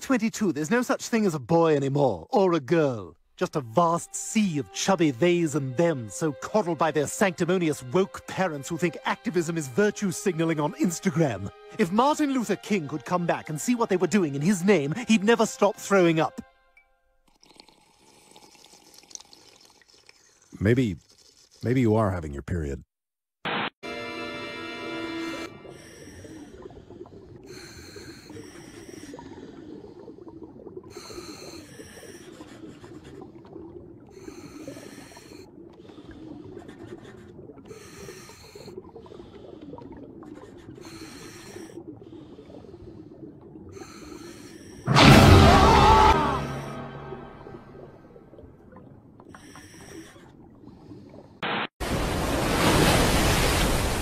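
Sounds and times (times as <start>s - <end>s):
bubbling: 17.2s - 21.8s, 25.5s - 52.0s
hissing regulator inhales: 40.6s - 42.9s, 43.8s - 44.9s
ocean water rushing: 44.9s - 48.6s, 51.5s - 54.0s.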